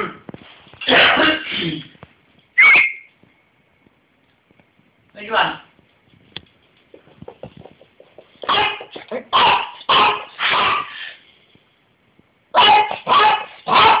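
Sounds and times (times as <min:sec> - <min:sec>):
small dog barking: 0:08.4 - 0:10.9, 0:12.5 - 0:14.0.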